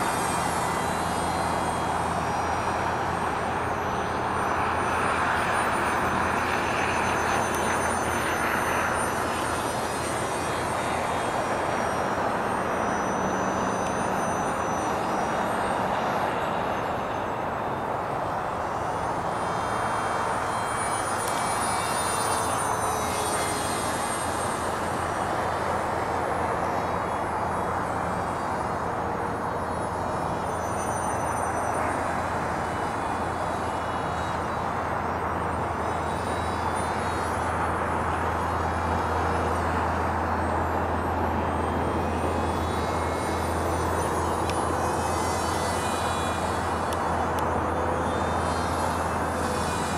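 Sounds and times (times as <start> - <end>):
electric motor high whine: 0.0 - 49.9.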